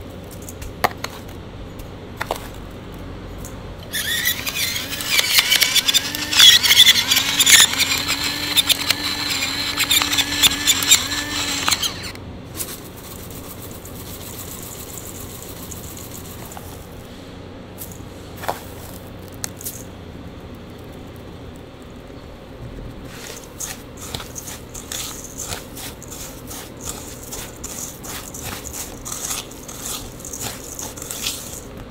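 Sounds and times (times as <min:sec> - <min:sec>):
pepper mill grinding: 0:03.8 - 0:16.8, 0:23.2 - 0:31.9.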